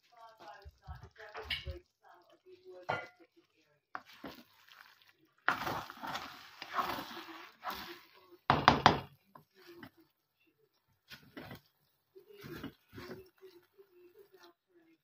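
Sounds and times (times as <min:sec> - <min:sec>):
spatula scraping rice in pan: 0:04.0 - 0:08.3, 0:11.0 - 0:13.6
utensil knocking against pan: 0:08.5 - 0:09.1.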